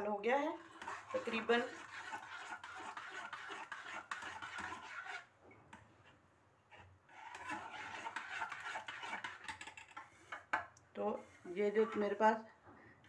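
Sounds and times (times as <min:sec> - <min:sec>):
metal spoon stirring in saucepan: 0:00.3 - 0:05.8, 0:06.7 - 0:12.2.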